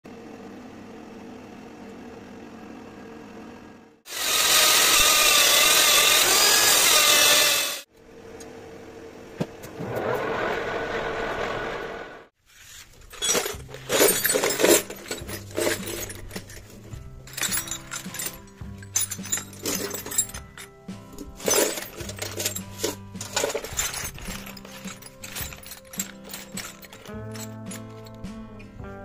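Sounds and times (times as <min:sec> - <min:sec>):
lathe cutting metal: 0:04.1 - 0:07.9
sharp clinking: 0:13.1 - 0:28.4
music: 0:13.5 - 0:29.0.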